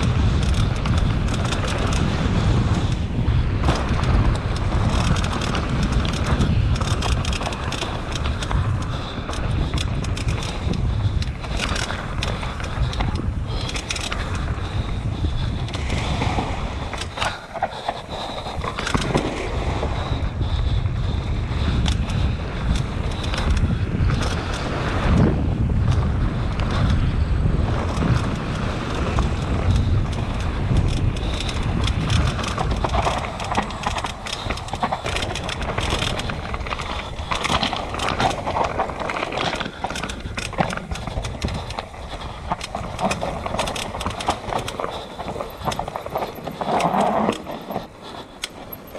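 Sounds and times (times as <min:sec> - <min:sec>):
bike clicks and knocks: 0:00.0 - 0:48.9
wind on microphone: 0:00.0 - 0:48.9
tyres rumbling over dirt and rocks: 0:27.7 - 0:48.9.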